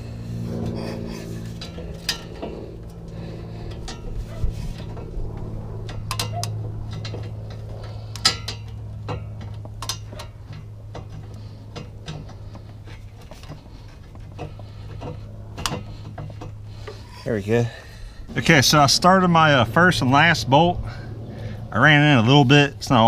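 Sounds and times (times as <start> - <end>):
low steady hum: 0.0 - 23.0
metal clinks and taps: 5.9 - 17.0.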